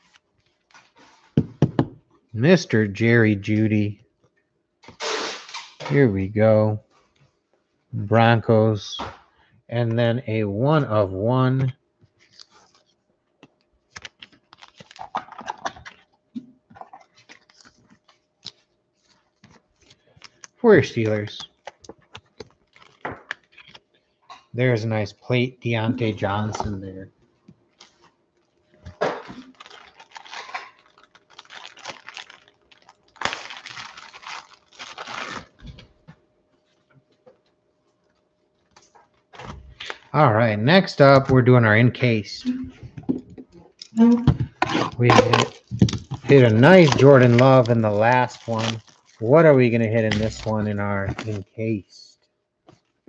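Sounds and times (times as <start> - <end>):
cards and plastic holders handled: 12.0 - 23.9
packaging crinkling and tearing: 12.1 - 23.9, 28.9 - 35.9, 44.5 - 51.4.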